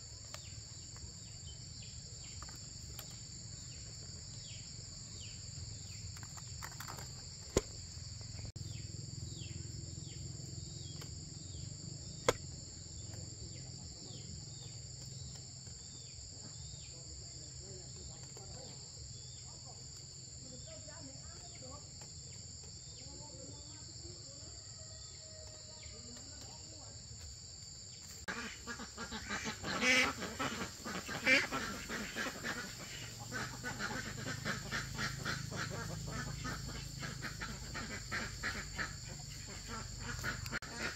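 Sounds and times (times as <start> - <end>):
insects chorus: 0.0 - 40.9
bird calls: 28.2 - 40.9.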